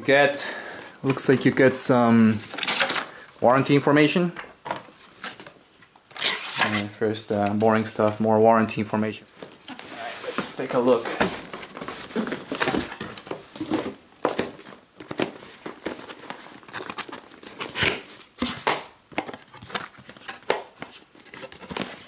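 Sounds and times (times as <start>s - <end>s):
cardboard packaging scraping: 6.1s - 7.0s, 9.7s - 14.0s.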